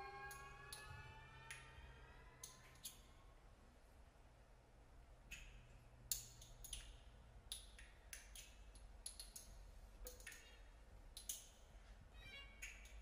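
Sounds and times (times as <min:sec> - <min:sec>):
low steady hum: 0:00.0 - 0:13.0
sharp clicks and taps: 0:05.3 - 0:11.6.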